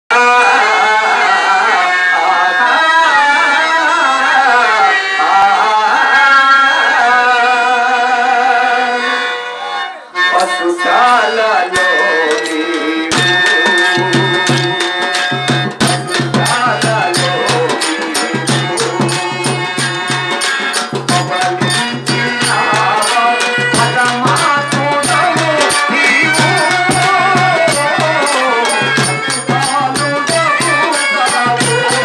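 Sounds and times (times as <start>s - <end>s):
man singing into a microphone: 0.1s - 9.5s, 10.1s - 32.0s
sustained accompaniment: 0.1s - 32.0s
jingling hand percussion: 10.3s - 32.0s
drum beat: 12.3s - 32.0s.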